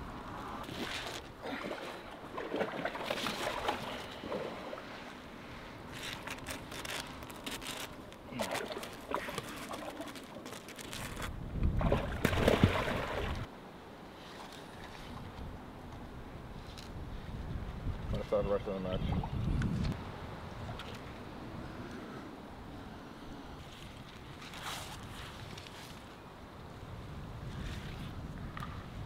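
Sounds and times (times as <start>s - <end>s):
water sloshing and splashing: 0.6s - 13.5s.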